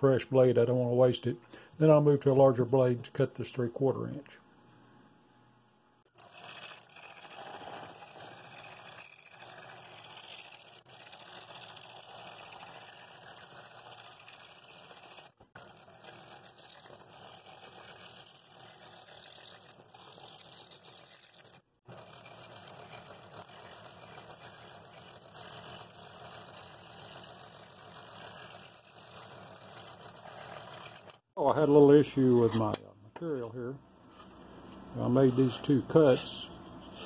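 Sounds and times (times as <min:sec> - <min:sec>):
scroll saw cutting wood: 0:06.1 - 0:32.8, 0:34.1 - 0:37.0.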